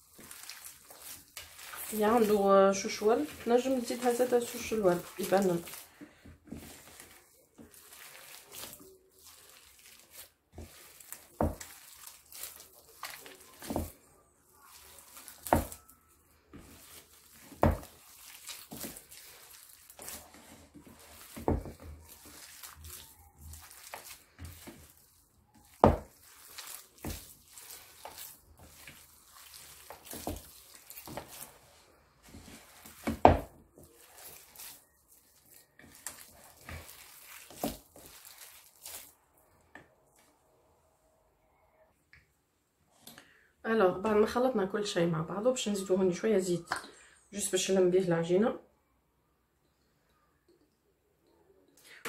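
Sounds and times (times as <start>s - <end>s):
sticky squishing and tearing: 0.0s - 5.9s, 6.6s - 15.9s, 16.6s - 39.3s.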